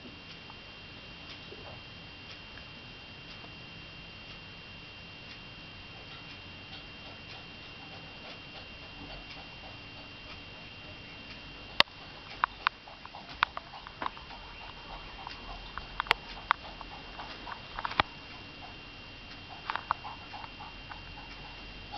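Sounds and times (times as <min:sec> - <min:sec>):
faint high-pitched whine: 0:00.0 - 0:21.9
sharp clicks and taps: 0:11.3 - 0:21.6.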